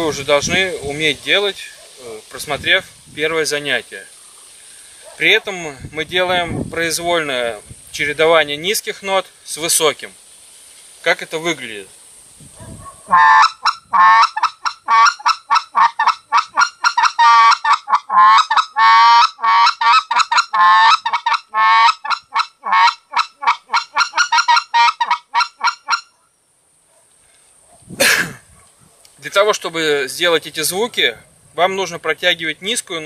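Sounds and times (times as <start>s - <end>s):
goose call cackling: 13.1s - 26.2s.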